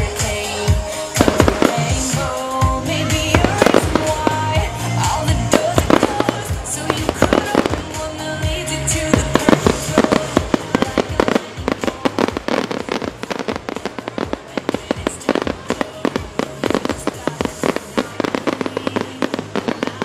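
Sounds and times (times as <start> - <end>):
fireworks bursting and crackling: 0.0 - 20.0
music playing: 0.0 - 20.0.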